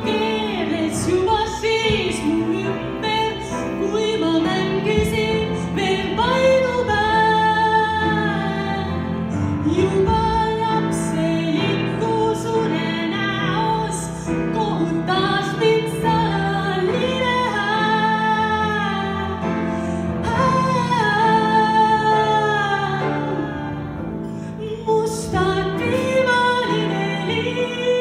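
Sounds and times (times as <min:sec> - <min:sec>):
piano: 0:00.0 - 0:28.0
woman singing slow melody: 0:24.6 - 0:28.0.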